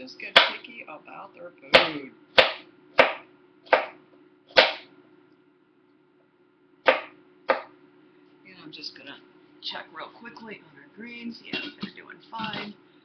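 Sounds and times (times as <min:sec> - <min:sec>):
knife chopping on a cutting board: 0:00.3 - 0:00.6, 0:01.7 - 0:04.9, 0:06.8 - 0:07.7.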